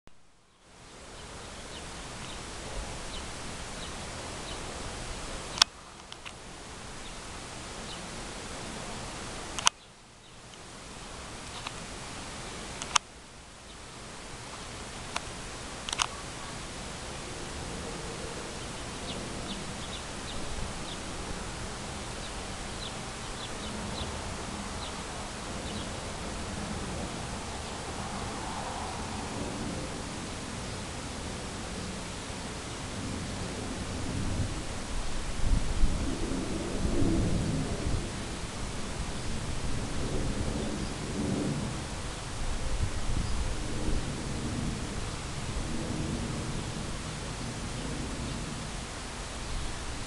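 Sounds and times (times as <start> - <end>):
steady hiss: 0.1 - 50.0
small birds chirping: 0.5 - 6.2, 7.0 - 8.8, 9.6 - 10.6, 13.6 - 14.8, 18.1 - 26.2
sharp click: 9.6 - 9.8, 12.8 - 13.1, 15.9 - 16.2.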